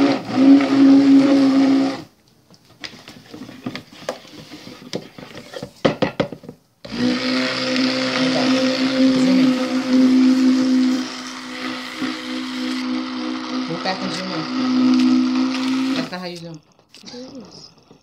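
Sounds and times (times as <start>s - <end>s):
stick blender running: 0.0s - 2.1s, 6.8s - 18.0s.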